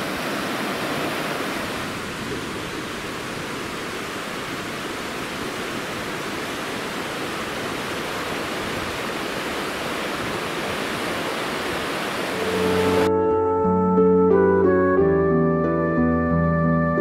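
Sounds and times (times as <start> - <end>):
river water rushing: 0.0 - 13.2.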